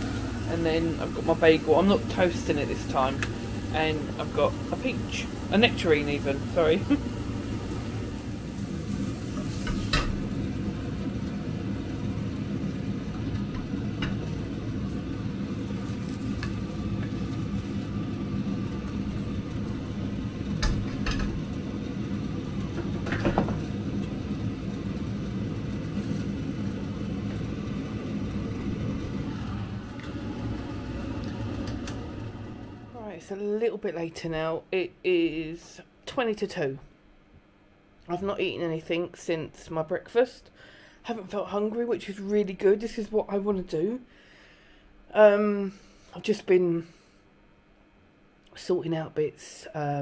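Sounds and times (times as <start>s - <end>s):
appliance motor humming: 0.0s - 33.0s.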